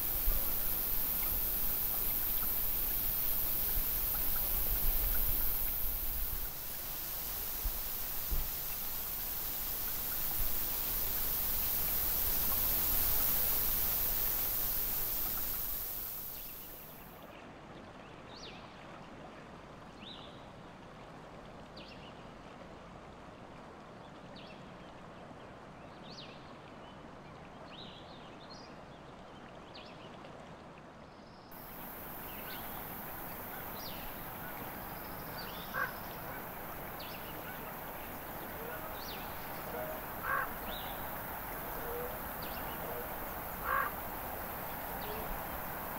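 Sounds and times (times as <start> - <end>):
river rushing: 0.0 - 16.9, 31.6 - 45.9
elk chirping calls: 32.6 - 41.0.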